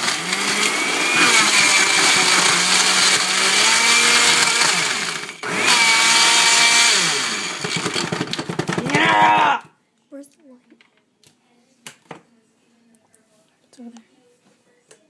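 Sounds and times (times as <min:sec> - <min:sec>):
blender running: 0:00.0 - 0:09.6.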